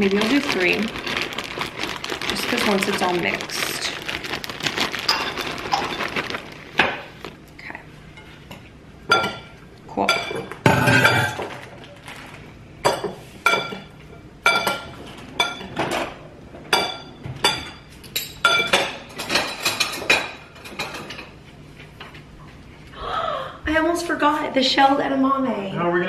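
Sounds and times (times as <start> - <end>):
dishes clinking against glassware: 9.1 - 11.5, 12.8 - 16.0, 16.7 - 21.3.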